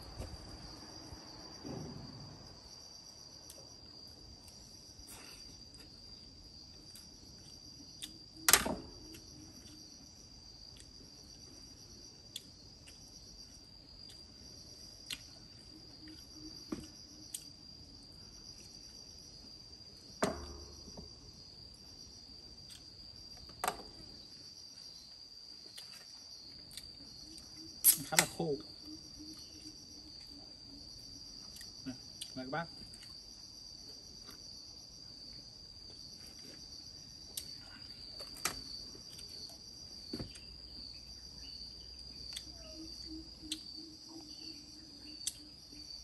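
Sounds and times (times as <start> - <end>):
insects trilling: 0.0 - 46.0
sharp knocks: 20.2 - 21.1.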